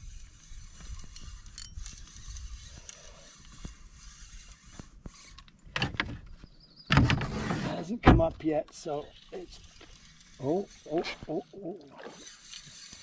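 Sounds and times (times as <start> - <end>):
fishing reel ratcheting: 0.0 - 5.6, 9.2 - 13.0.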